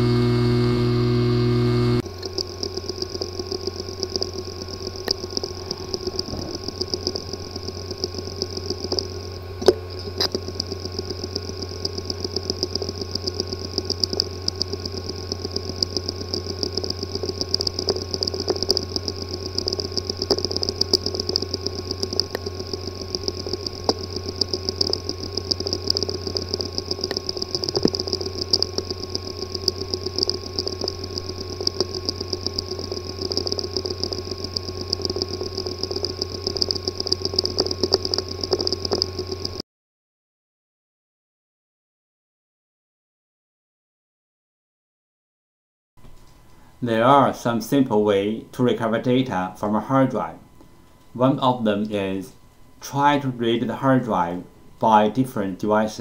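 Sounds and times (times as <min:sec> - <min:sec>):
hard drive hum and whine: 0:00.0 - 0:39.6, 0:46.0 - 0:56.0
hard drive ticking and clicking: 0:00.0 - 0:39.6.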